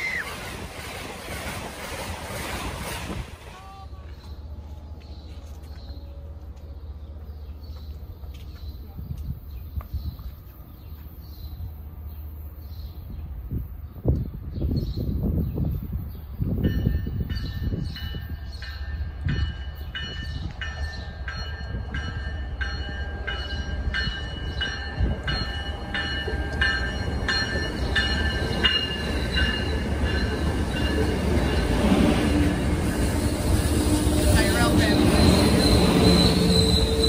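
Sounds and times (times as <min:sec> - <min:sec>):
low train rumble: 0:00.0 - 0:37.0
train bell ringing: 0:16.5 - 0:31.9.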